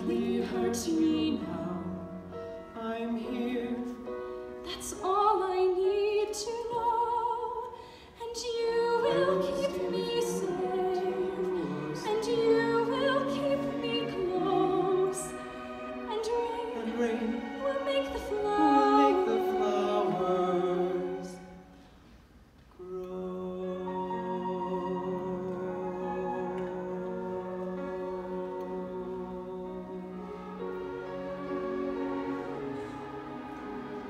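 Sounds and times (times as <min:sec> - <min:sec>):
woman singing opera: 0:00.0 - 0:02.1, 0:02.8 - 0:21.4, 0:22.8 - 0:32.6
orchestra strings: 0:00.0 - 0:34.0.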